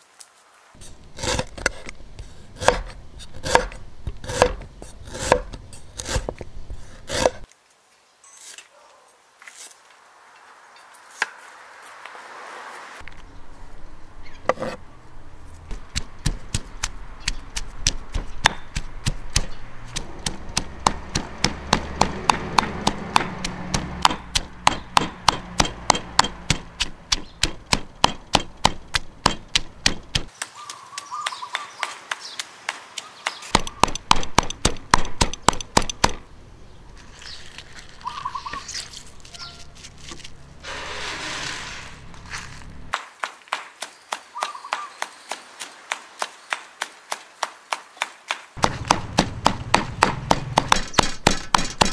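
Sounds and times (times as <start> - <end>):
knife chopping on cutting board: 2.6 - 6.4, 48.6 - 51.9.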